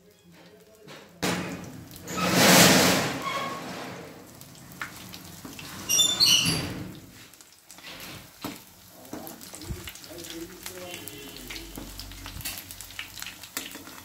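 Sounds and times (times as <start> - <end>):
hot oil sizzling: 0.0 - 14.0
short high-pitched squeaks: 5.8 - 6.7.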